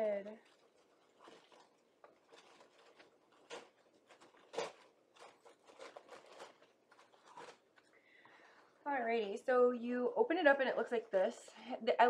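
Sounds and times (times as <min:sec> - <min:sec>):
box and paper rustling: 0:00.0 - 0:08.0.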